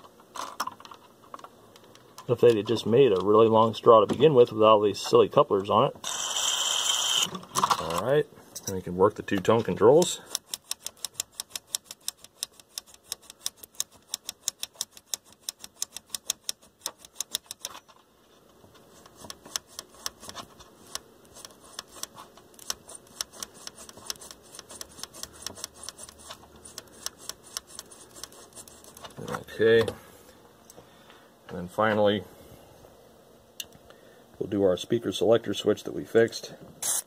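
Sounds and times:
faint hiss: 29.2s - 37.0s.

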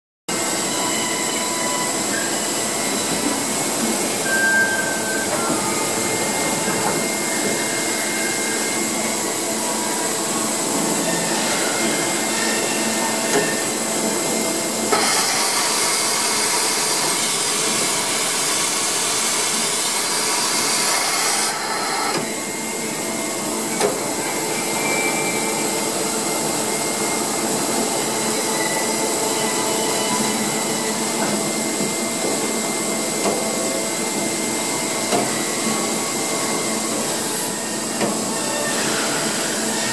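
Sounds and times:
loud hiss: 14.9s - 22.1s.

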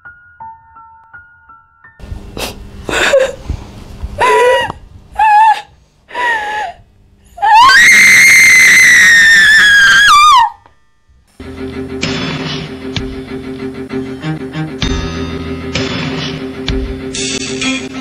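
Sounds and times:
woman screaming: 4.2s - 6.8s, 7.4s - 10.6s.

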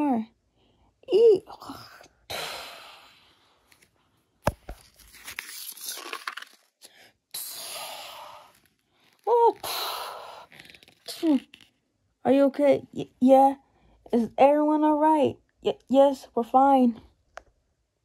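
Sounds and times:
paper rustling and crinkling: 4.5s - 6.8s.

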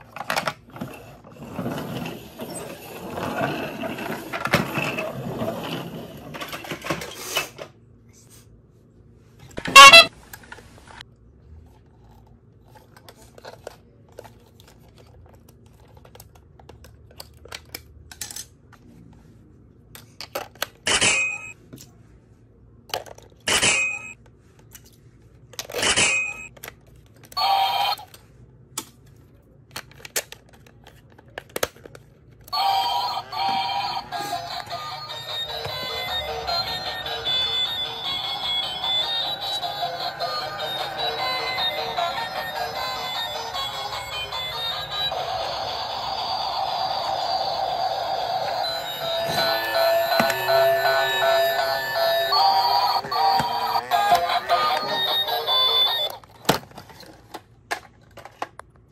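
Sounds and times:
electronic toy tone: 9.7s - 10.1s, 27.4s - 28.0s, 32.6s - 56.2s
plastic toy clattering: 52.8s - 58.8s.

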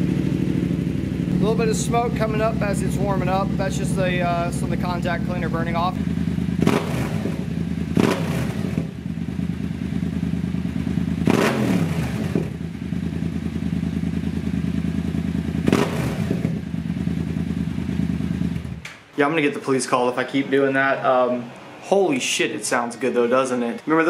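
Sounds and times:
motorcycle engine revving: 0.0s - 18.8s.

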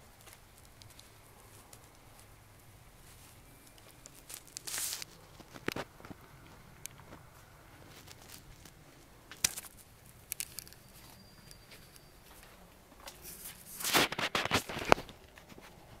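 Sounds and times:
camera handling crackling and rustling: 3.7s - 11.2s, 13.3s - 15.8s
sharp clicks: 9.3s - 11.6s.

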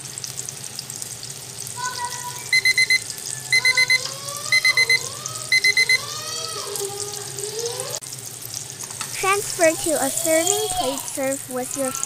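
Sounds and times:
omelette sizzling in oil: 0.0s - 12.0s
digital alarm clock beeping: 2.5s - 6.1s.

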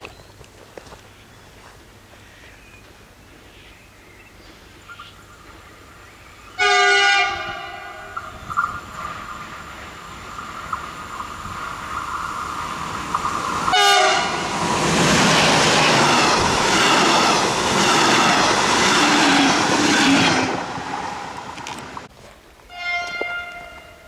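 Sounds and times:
electric train high whine: 6.5s - 22.1s
train horn blast: 6.6s - 8.2s, 13.7s - 14.5s, 22.7s - 24.0s
train wheels clattering on rails: 8.1s - 22.1s.

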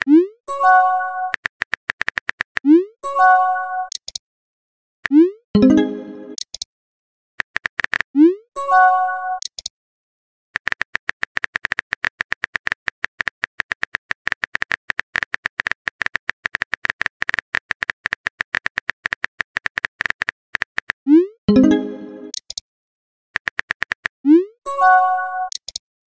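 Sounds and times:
keyboard typing clicks: 1.2s - 2.8s, 3.9s - 4.2s, 5.1s - 6.7s, 7.4s - 8.1s, 9.4s - 9.7s, 10.6s - 21.0s, 21.6s - 22.6s, 23.4s - 24.1s, 25.4s - 25.8s.

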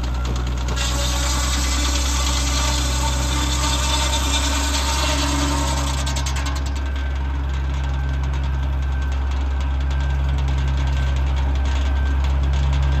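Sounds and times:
tractor engine running: 0.0s - 3.6s, 5.6s - 13.0s
saw blade spinning: 0.7s - 6.8s.

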